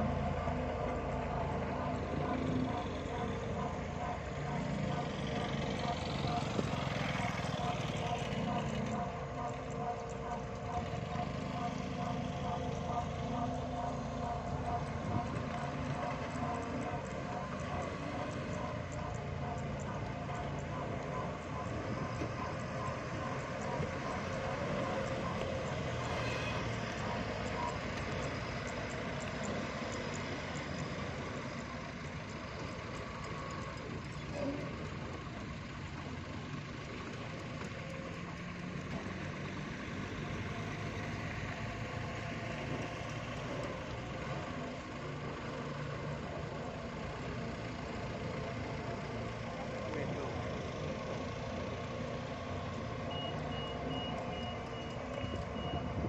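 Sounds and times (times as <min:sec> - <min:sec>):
forklift engine running: 0:00.0 - 0:56.0
road roller engine: 0:00.0 - 0:56.0
reversing alarm beeps: 0:53.0 - 0:56.0.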